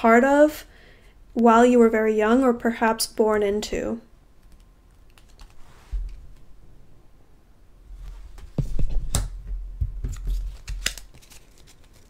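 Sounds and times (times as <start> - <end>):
cards clicking and tapping: 10.0 - 12.0
cards rustling: 10.1 - 12.0.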